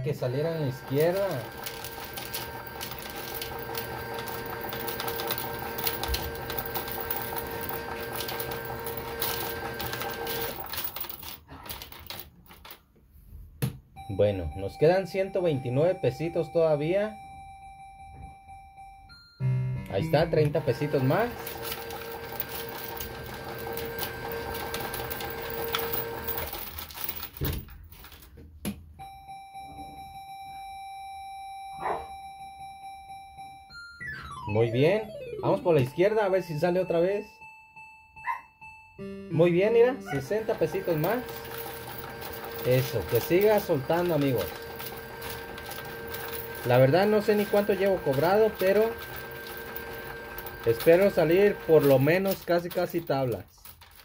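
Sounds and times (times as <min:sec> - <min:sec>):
coins clattering into tray: 0:00.4 - 0:12.8, 0:20.6 - 0:28.3, 0:40.1 - 0:54.0
electronic tone: 0:29.0 - 0:39.4.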